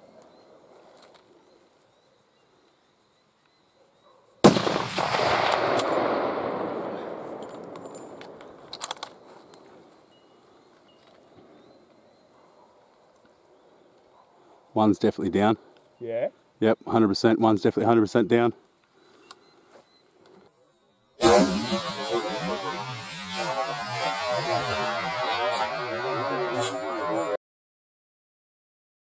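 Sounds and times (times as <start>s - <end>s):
rifle shot with echo: 4.4s - 8.7s.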